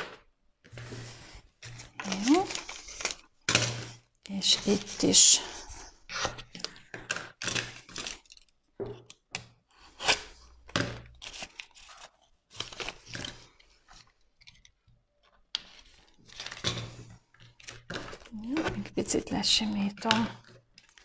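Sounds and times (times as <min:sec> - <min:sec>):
squeegee scraping vinyl film: 0:00.7 - 0:06.7
film crinkling: 0:00.7 - 0:09.3, 0:10.0 - 0:21.0.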